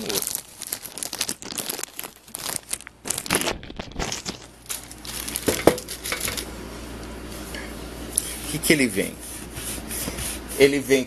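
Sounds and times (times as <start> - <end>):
packaging rustling and crackling: 0.0 - 6.5.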